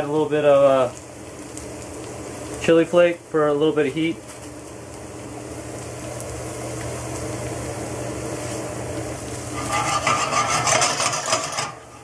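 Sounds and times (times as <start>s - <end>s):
onions sizzling in a pan: 0.0s - 12.0s
wooden spoon scraping a pan: 9.4s - 12.0s.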